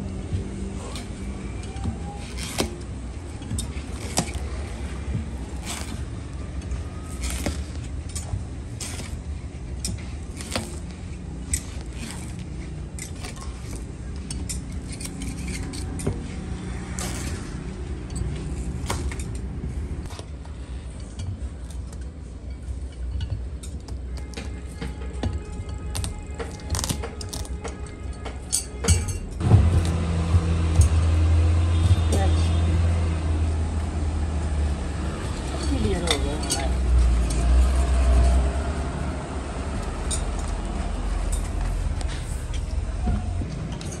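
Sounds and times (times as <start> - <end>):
sharp metallic clinks and taps: 21.0 - 30.0.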